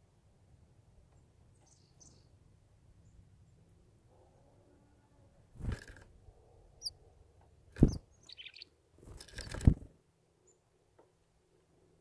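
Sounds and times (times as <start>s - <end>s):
small birds chirping: 1.1s - 2.4s, 6.6s - 7.0s, 7.7s - 10.6s
bird twittering call: 7.8s - 8.7s.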